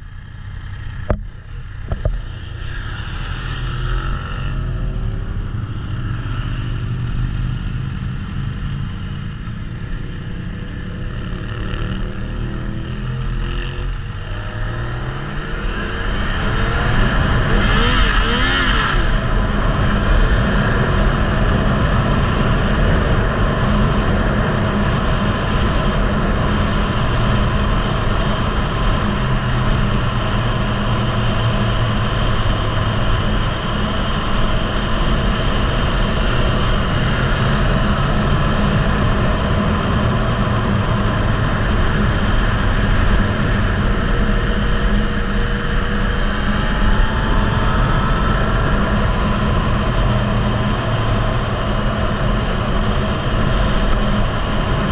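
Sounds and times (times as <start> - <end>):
motorcycle engine at speed: 0.0 - 54.9
wind rumble on microphone: 0.8 - 54.9.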